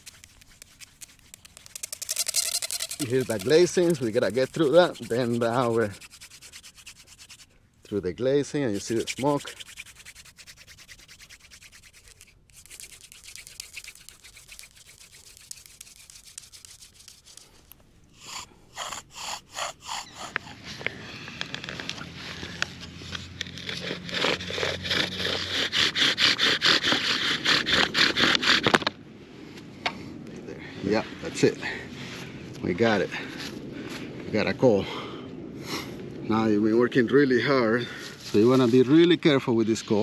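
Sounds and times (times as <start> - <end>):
wooden spindle rubbing on board: 0.0 - 7.5, 8.6 - 17.5, 18.2 - 20.6, 23.6 - 28.8
bow drill strokes: 0.0 - 28.8.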